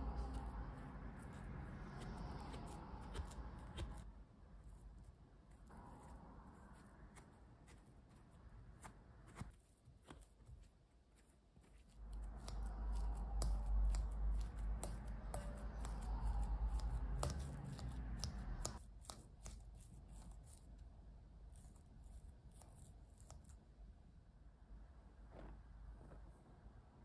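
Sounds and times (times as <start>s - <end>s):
fork mashing squash: 0.0s - 4.1s, 5.5s - 20.7s.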